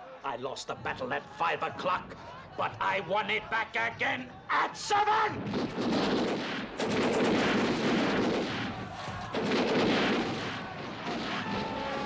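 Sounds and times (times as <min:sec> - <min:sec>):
musket volleys crackling: 0:05.5 - 0:12.0.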